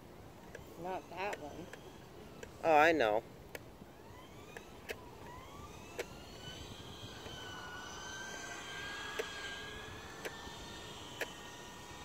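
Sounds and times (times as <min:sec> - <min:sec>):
rc car motor whining: 0:00.5 - 0:03.2, 0:03.9 - 0:12.0.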